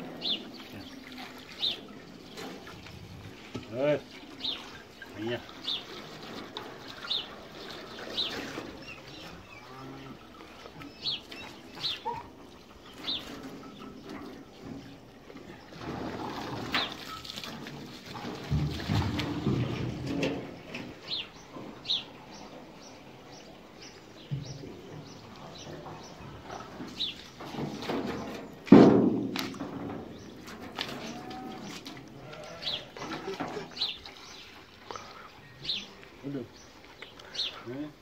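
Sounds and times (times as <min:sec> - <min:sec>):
water splashing: 0:00.0 - 0:38.0
metal trough scraping: 0:01.5 - 0:22.8, 0:24.2 - 0:34.4
small birds chirping: 0:07.0 - 0:15.7, 0:20.6 - 0:28.7, 0:29.4 - 0:38.0.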